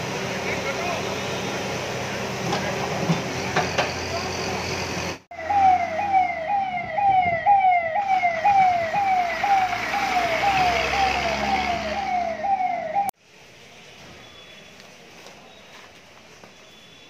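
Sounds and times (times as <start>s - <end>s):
fire engine electronic siren: 3.5s - 13.2s.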